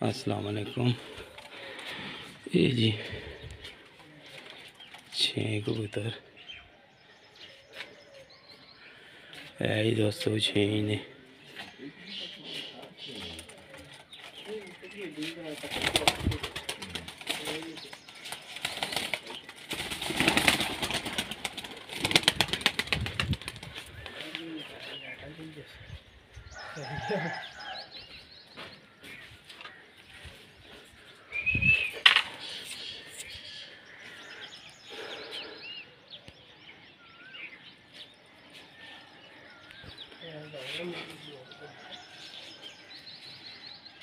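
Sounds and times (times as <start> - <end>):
faint outdoor background noise: 0.0 - 44.0
small birds chirping: 0.0 - 44.0
pigeon wings flapping: 15.5 - 24.2.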